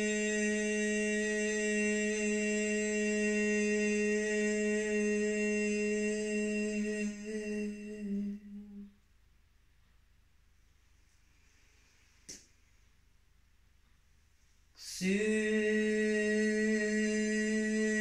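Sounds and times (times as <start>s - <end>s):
person humming a held note: 0.0s - 9.0s.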